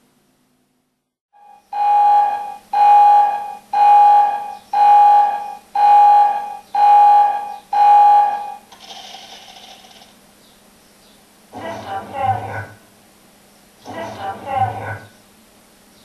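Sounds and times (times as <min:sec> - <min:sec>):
electronic alarm beeping: 0:01.4 - 0:08.7.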